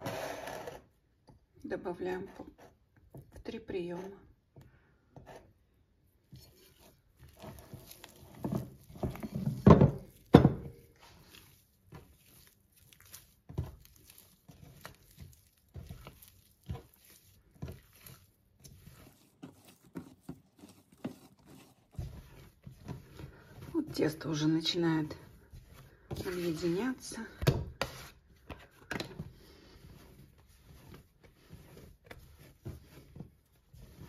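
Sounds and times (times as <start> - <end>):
dough squelching and slapping: 2.6 - 34.0
dough thumping on wooden board: 8.4 - 10.8, 27.3 - 29.2.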